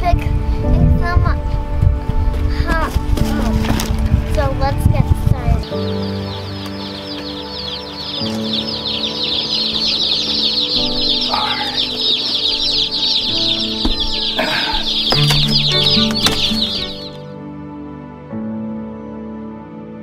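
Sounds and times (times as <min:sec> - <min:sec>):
soft background music: 0:00.0 - 0:20.0
chicks peeping: 0:05.0 - 0:17.3.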